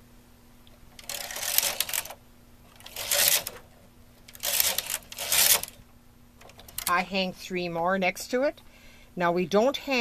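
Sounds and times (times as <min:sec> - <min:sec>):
knitting machine carriage clattering: 0:01.0 - 0:03.7, 0:04.3 - 0:05.8, 0:06.4 - 0:07.0.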